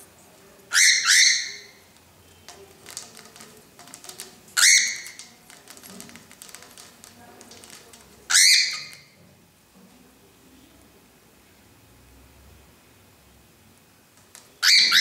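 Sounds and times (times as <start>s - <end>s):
cockatiel harsh calls: 0.7s - 1.8s, 4.6s - 5.2s, 8.3s - 9.1s, 14.6s - 15.0s
light clicks and taps: 2.0s - 8.3s.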